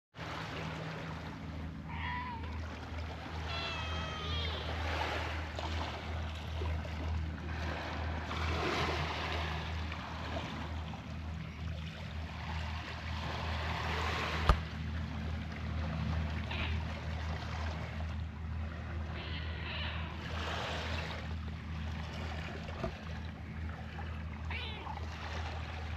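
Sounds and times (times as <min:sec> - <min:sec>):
outdoor noise: 0:00.2 - 0:25.9
steady low hum: 0:00.2 - 0:25.9
cat meowing: 0:01.9 - 0:02.5, 0:03.4 - 0:04.8, 0:19.2 - 0:20.2, 0:24.5 - 0:25.0.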